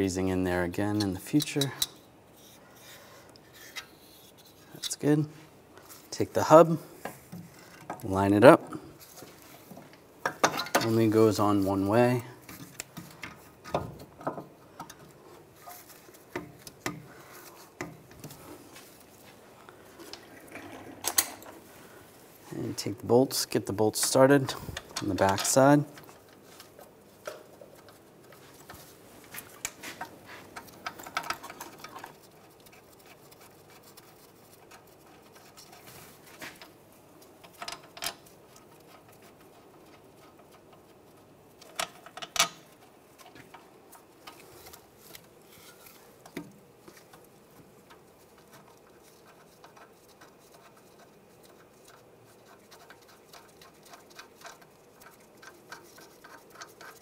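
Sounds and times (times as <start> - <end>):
metal bolts clicking and scraping: 0.8 - 2.0, 10.2 - 11.4, 23.7 - 28.9, 29.6 - 32.3, 36.5 - 40.9, 41.6 - 46.5.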